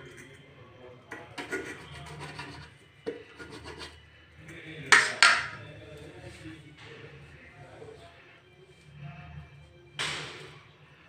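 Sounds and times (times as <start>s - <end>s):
dough rubbing on steel plates: 1.1s - 6.6s.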